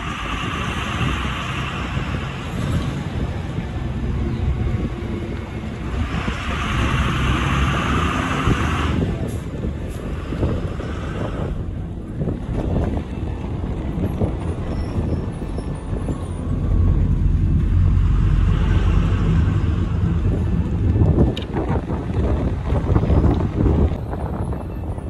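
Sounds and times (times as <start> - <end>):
vehicle engine and road rumble: 0.0 - 25.0.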